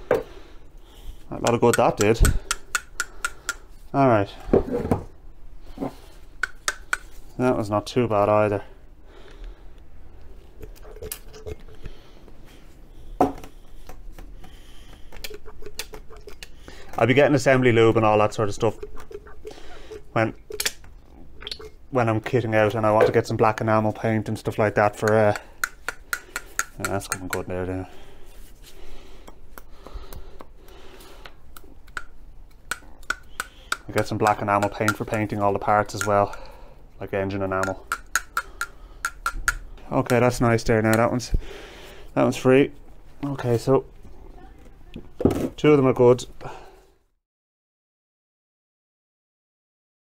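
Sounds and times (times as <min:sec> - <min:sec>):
oil can pump clicks: 0:31.9 - 0:36.4, 0:37.6 - 0:40.3
light metal clicks and taps: 0:37.6 - 0:40.2.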